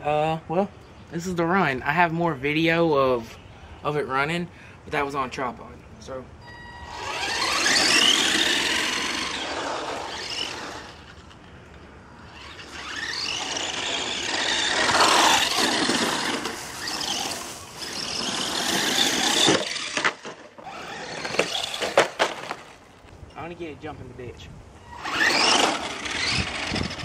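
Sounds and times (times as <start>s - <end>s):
rc truck motor whining: 6.4s - 22.0s, 24.8s - 27.0s.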